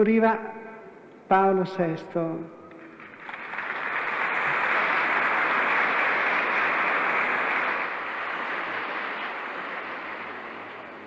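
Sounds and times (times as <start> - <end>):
large crowd applauding: 2.8 - 11.0.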